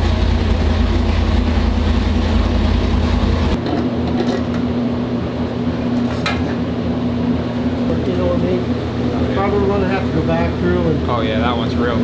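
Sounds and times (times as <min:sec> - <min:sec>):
engine running: 0:00.0 - 0:03.6.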